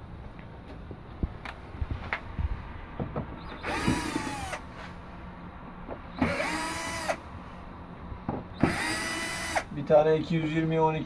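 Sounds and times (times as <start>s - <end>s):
cordless drill motor whine: 3.4s - 4.6s, 6.1s - 7.2s, 8.6s - 9.7s.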